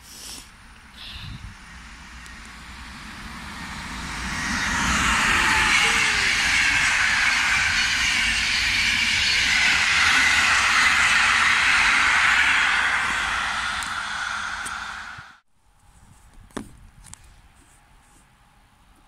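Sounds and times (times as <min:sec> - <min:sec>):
train passing at speed: 0:00.0 - 0:15.4
wheels rushing on rail: 0:00.0 - 0:15.4.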